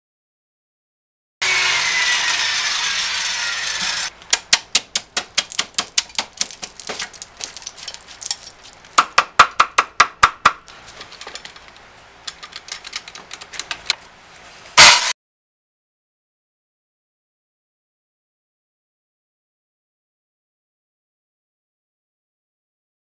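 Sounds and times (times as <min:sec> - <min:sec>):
circular saw running: 0:01.4 - 0:04.1
sharp wooden knocks and snaps: 0:04.1 - 0:14.0.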